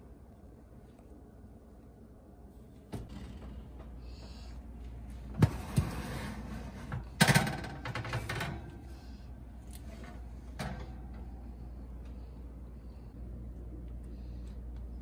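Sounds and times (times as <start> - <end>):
metal pan clattering on oven rack: 6.9 - 8.7.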